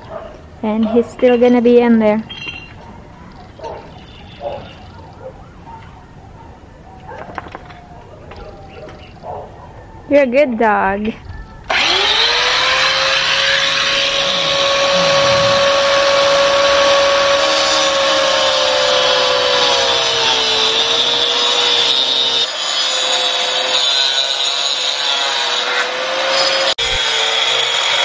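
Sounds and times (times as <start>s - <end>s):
angle grinder cutting pipe: 11.7s - 28.0s.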